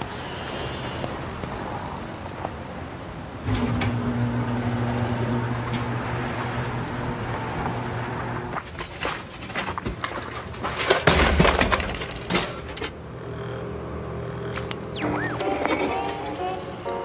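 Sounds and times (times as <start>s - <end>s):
quiet street background: 0.0s - 17.0s
garage shutter motor humming: 3.5s - 8.6s.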